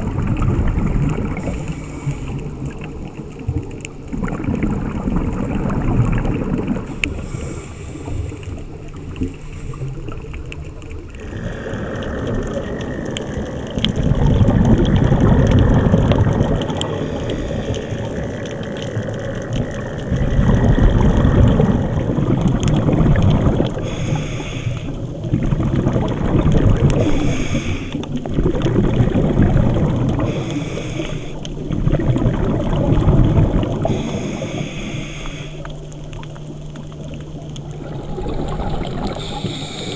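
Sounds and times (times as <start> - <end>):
exhaled bubbles underwater: 0.0 - 39.9
regulator air hiss: 23.8 - 24.9, 27.0 - 28.0, 30.3 - 31.5, 33.8 - 35.7, 39.1 - 39.9.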